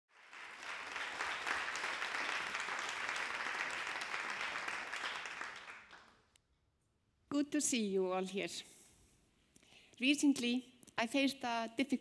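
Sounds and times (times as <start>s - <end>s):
audience applauding: 0.1s - 6.2s.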